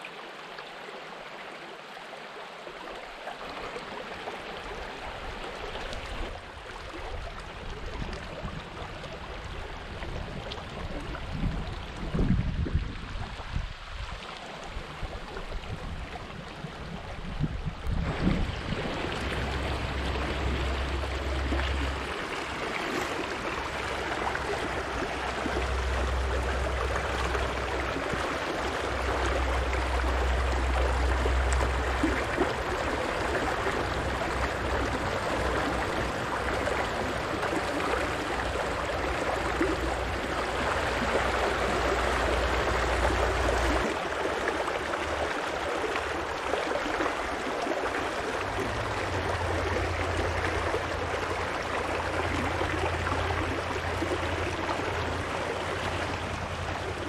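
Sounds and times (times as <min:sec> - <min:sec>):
low rumble: 0:17.2 - 0:44.1
river rushing over rocks: 0:18.0 - 0:57.0.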